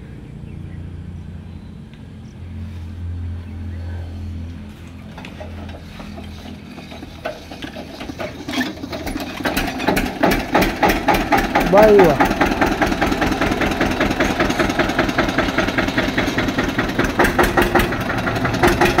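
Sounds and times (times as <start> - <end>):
tractor engine cranking and firing: 4.9 - 19.0.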